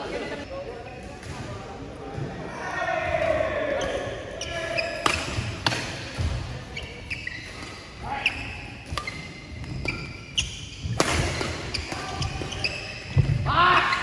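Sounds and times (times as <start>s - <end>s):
shoes squeaking on court floor: 3.8s - 14.0s
racket striking shuttlecock: 10.9s - 12.3s.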